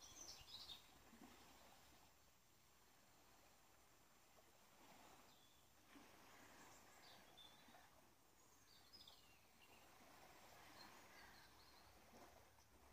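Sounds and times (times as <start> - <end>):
faint high bird chirps: 10.6 - 12.0.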